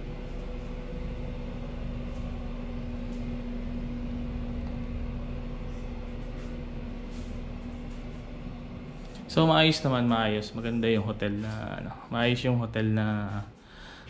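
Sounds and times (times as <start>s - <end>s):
ventilation unit humming: 0.0s - 14.0s
faint light rustles: 1.9s - 11.8s.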